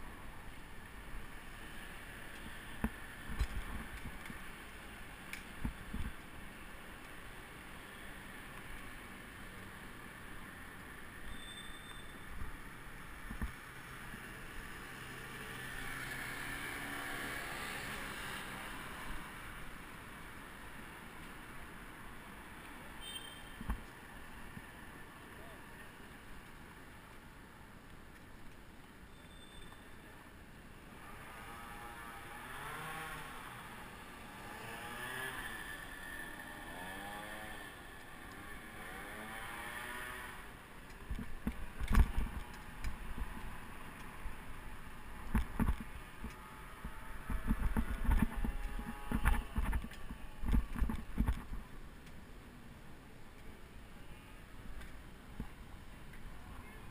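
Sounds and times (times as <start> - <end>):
motor vehicle engine revving: 38.4 - 40.4.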